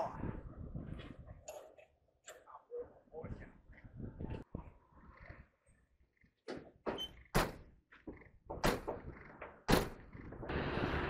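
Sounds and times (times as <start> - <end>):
heavy metal knocks and clunks: 6.4 - 10.5.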